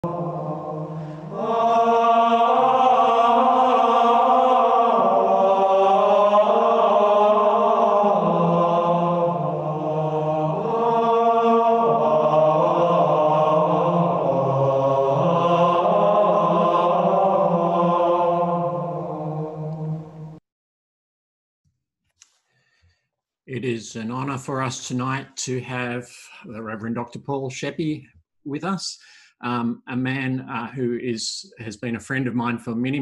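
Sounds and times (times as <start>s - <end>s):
slow chanted choral music: 0.0s - 20.4s.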